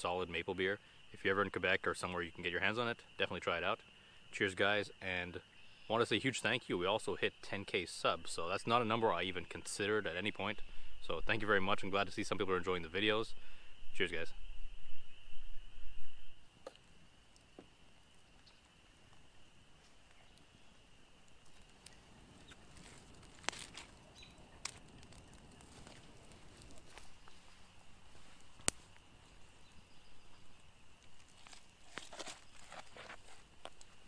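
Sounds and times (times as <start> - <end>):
campfire crackling and popping: 16.3 - 34.0.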